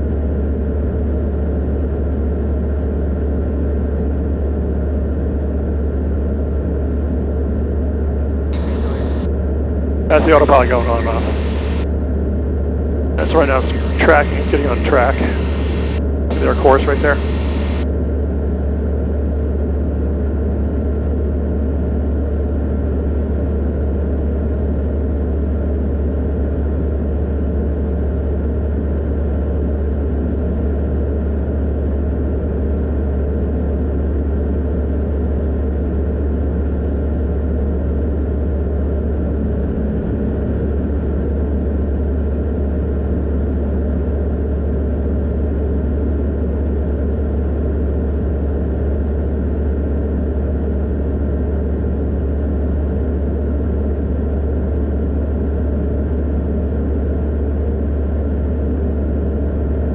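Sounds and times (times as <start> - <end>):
light aircraft engine drone: 0.0 - 59.9.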